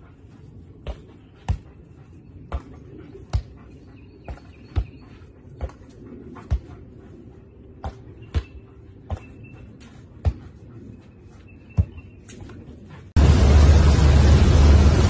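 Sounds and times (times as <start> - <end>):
bird chirps: 1.2 - 5.4, 7.5 - 10.2, 10.8 - 12.6
loud steady rushing noise: 13.1 - 15.0.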